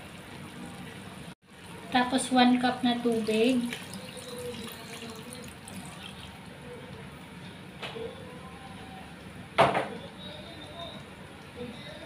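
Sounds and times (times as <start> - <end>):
water poured splashing over meat: 3.2 - 6.4.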